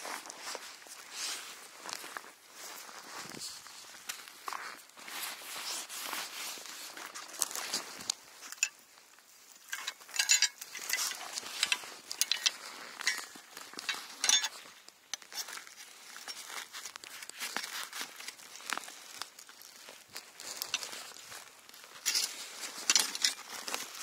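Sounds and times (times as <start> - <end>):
fishing rods clicking and clinking: 8.0 - 8.8, 9.6 - 16.5, 22.0 - 23.5.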